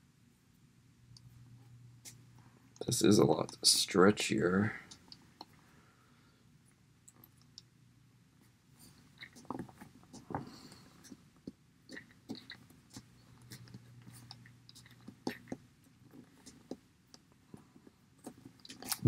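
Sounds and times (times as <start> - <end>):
soft handling clicks and rubbing: 8.4 - 19.0.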